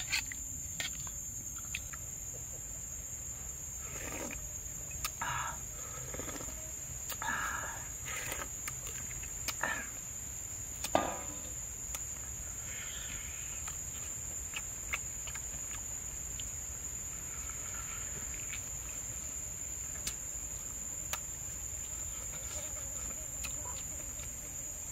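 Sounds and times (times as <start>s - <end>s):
insects droning: 0.0s - 24.9s
mouth clicks and smacks chewing: 4.9s - 5.2s, 8.3s - 9.6s, 13.6s - 16.6s.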